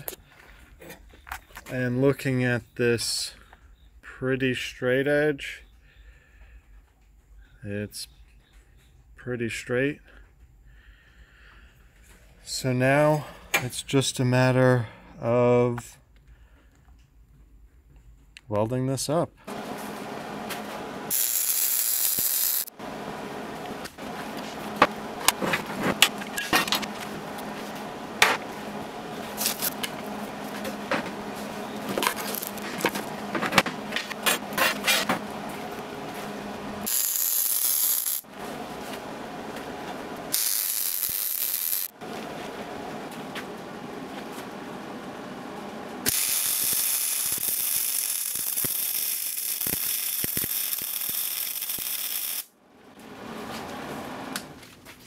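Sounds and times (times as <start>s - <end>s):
welder arc crackling and sizzling: 19.6s - 22.7s, 28.5s - 33.2s, 35.6s - 38.3s, 39.6s - 42.0s, 46.1s - 52.5s.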